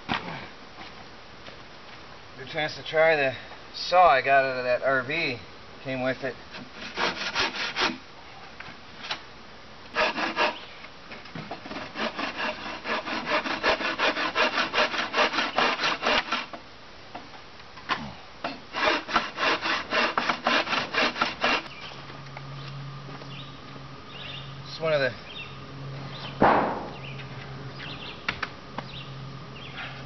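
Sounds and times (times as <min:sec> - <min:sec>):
hand saw cutting wood: 0:06.5 - 0:08.0, 0:09.9 - 0:10.7, 0:11.6 - 0:16.6, 0:18.5 - 0:21.8.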